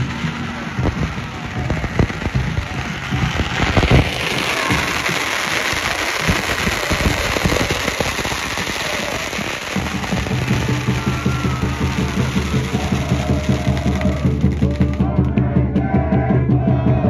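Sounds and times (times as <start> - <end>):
firecrackers crackling and popping: 0.0 - 15.9
fans cheering: 0.0 - 17.0.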